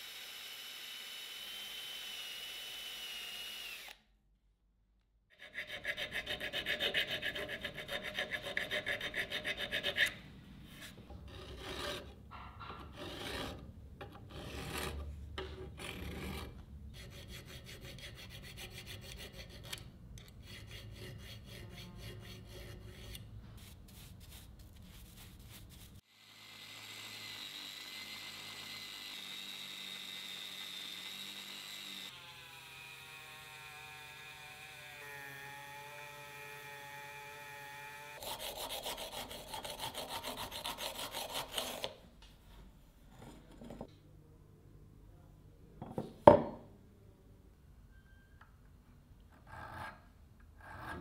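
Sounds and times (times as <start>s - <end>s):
hand file rasping on metal: 5.3s - 24.4s, 38.2s - 42.0s, 49.4s - 51.0s.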